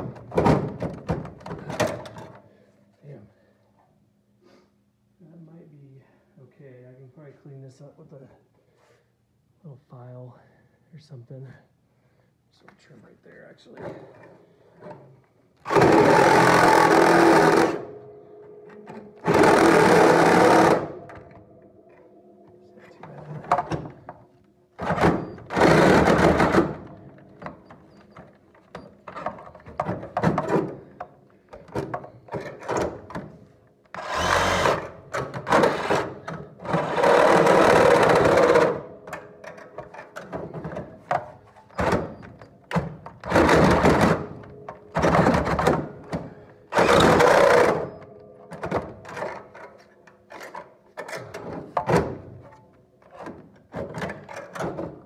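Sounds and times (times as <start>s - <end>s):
power tool trimming metal: 15.7s - 17.9s, 19.2s - 21.0s, 34.0s - 38.8s.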